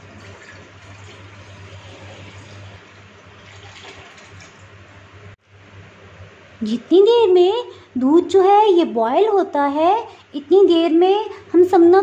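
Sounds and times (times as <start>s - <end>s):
milk pouring into pot: 0.0s - 4.7s.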